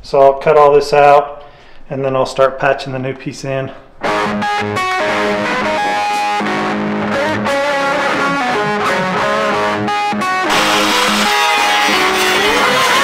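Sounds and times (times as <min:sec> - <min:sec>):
electric guitar background music: 0:04.0 - 0:13.0.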